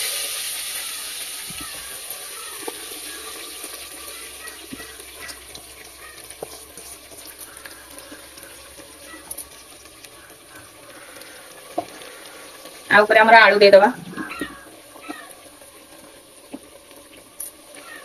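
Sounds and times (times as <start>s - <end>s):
chicken sizzling in hot oil: 0.0s - 18.0s
small pops and crackles: 2.6s - 2.8s, 4.4s - 12.9s, 14.1s - 18.0s.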